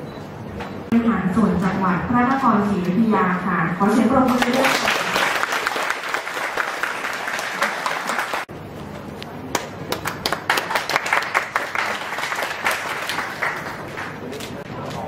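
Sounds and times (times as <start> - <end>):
crowd applauding: 4.3 - 8.5, 9.5 - 14.4.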